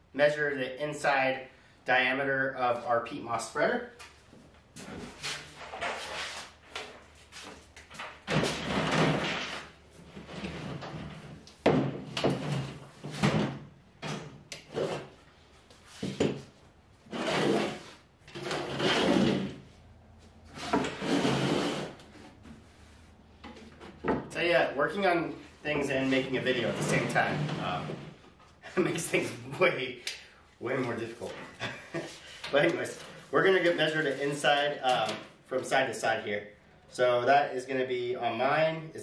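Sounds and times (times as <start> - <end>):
wooden knocking and scraping: 15.9 - 16.5, 23.4 - 24.4.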